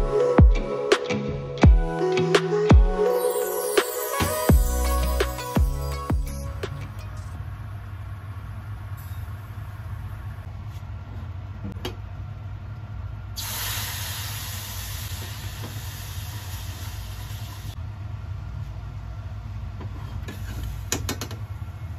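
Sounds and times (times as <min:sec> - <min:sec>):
loud steady hiss: 0:13.4 - 0:17.8.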